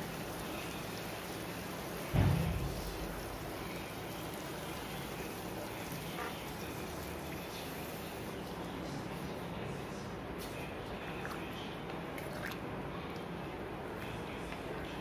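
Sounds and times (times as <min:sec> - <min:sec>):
dull low thump: 0:02.2 - 0:03.0.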